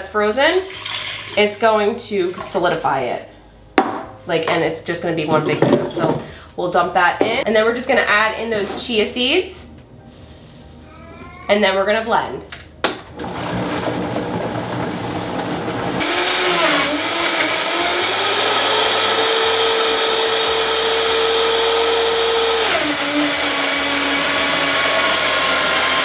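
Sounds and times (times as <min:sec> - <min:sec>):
blender motor whining: 0:13.2 - 0:26.0.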